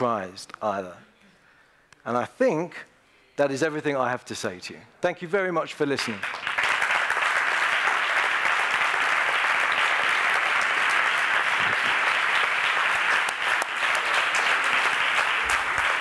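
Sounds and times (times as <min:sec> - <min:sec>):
large audience applauding: 0:06.0 - 0:16.0.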